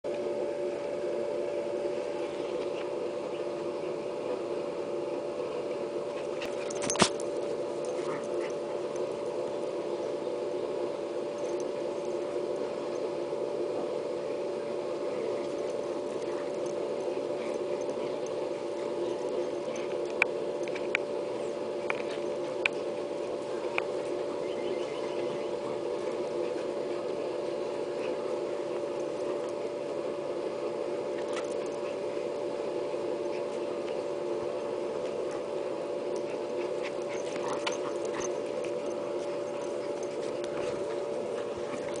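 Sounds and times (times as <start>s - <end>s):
steady hum: 0.0s - 42.0s
dog making play noises: 31.0s - 42.0s.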